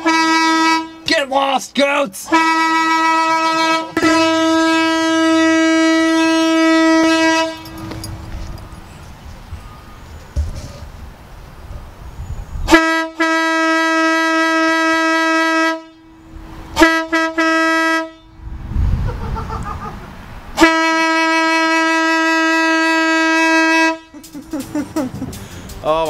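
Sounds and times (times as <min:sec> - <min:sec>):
electric air horn blasting: 0:00.0 - 0:01.0, 0:02.3 - 0:07.9, 0:12.7 - 0:18.4, 0:20.6 - 0:24.2.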